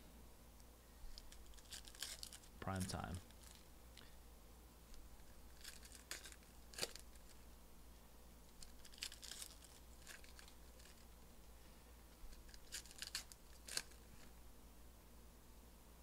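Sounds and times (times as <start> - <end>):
foil wrapper tearing and crinkling: 1.1 - 2.5, 5.5 - 7.4, 8.6 - 11.1, 12.3 - 14.3
cards being handled: 1.1 - 3.7, 4.9 - 7.4, 8.5 - 11.2, 12.2 - 14.3.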